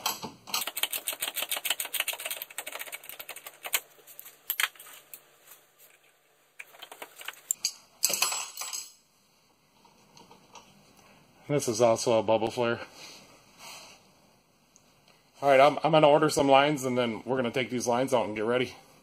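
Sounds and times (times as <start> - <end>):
metal clinks: 7.5 - 9.0.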